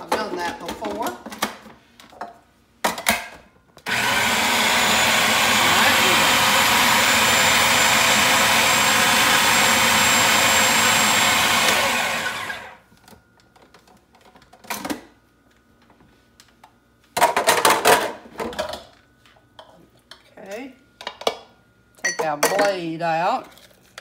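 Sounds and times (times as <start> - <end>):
food processor running: 3.8 - 12.8.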